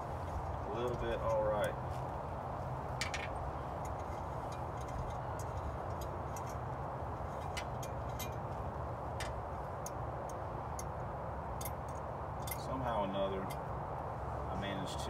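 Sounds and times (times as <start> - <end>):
steady background noise: 0.0 - 15.0
light metallic clicks and clinks: 3.0 - 11.0, 11.6 - 13.7.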